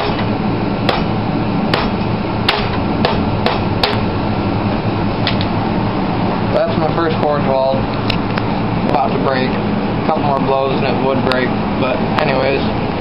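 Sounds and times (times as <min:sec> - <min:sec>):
hammer striking steel rod: 0:00.0 - 0:00.2, 0:00.9 - 0:01.1, 0:01.7 - 0:04.0.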